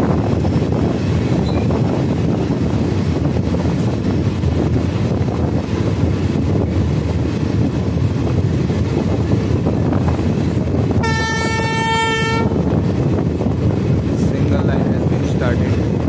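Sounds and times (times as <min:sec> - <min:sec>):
train wheels rumbling on rail: 0:00.0 - 0:16.0
locomotive horn blast: 0:11.0 - 0:12.8.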